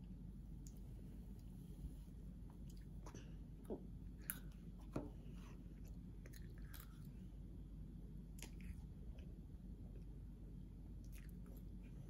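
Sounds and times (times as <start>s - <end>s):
child chewing: 2.4s - 7.4s.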